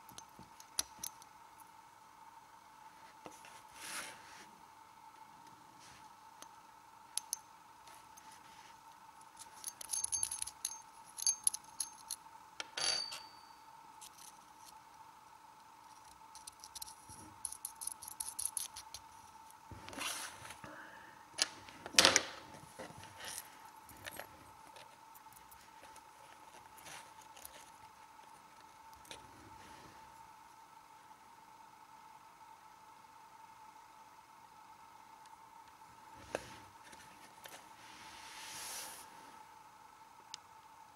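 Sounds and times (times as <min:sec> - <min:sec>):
light metallic clicks and clinks: 0:09.3 - 0:14.8, 0:15.9 - 0:19.1.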